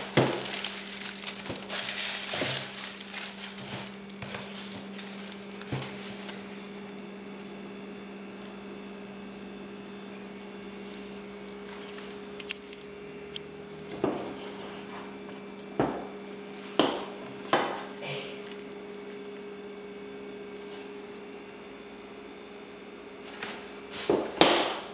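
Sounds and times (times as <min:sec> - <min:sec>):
shoe packaging handling noise: 0:00.0 - 0:07.0
low electrical hum: 0:00.0 - 0:24.9.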